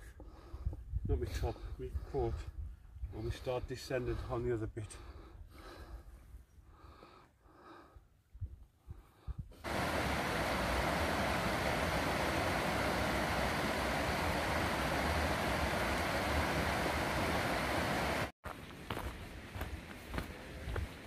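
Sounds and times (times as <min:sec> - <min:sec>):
faint breathy sounds: 0:00.0 - 0:09.5
steady rushing noise with rumble: 0:09.6 - 0:18.3.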